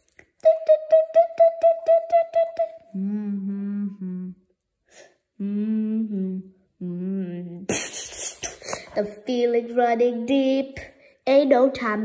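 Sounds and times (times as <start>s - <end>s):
person humming: 0.4s - 4.5s, 5.4s - 7.9s.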